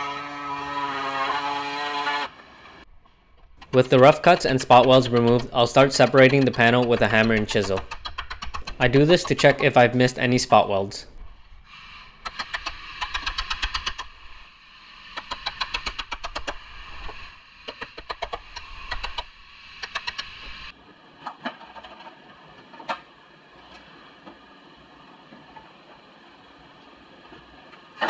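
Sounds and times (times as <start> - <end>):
hammer tapping metal chisel: 3.6 - 9.9.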